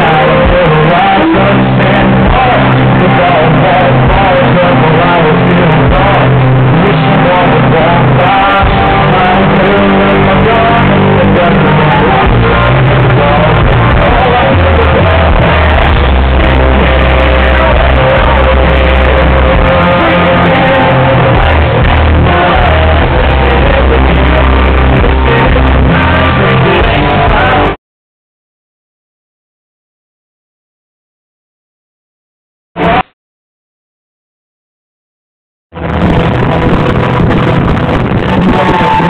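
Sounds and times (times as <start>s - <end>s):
live country band playing: 0.0s - 27.8s, 35.8s - 39.0s.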